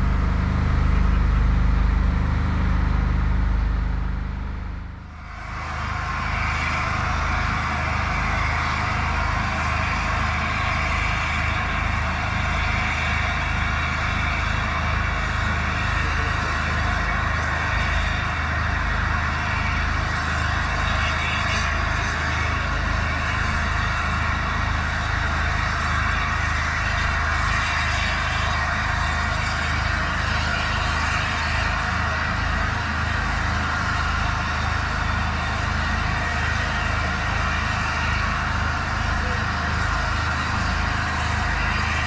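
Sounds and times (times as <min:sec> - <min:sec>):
low even rumble: 0:00.0 - 0:05.2.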